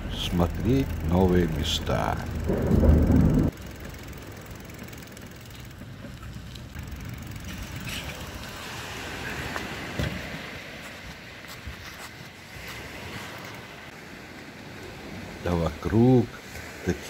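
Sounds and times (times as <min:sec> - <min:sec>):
loud low rumble: 0:00.0 - 0:03.6.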